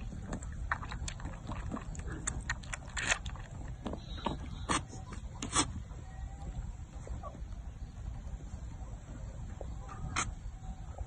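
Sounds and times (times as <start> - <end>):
goat sucking at a bottle: 0.0 - 5.8
low steady rumble: 0.0 - 11.0.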